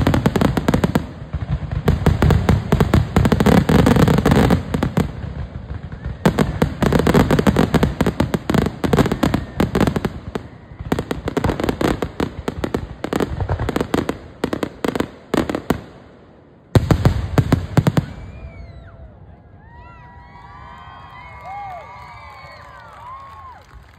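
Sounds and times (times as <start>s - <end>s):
fireworks bursting and crackling: 0.0s - 19.1s, 19.8s - 23.9s.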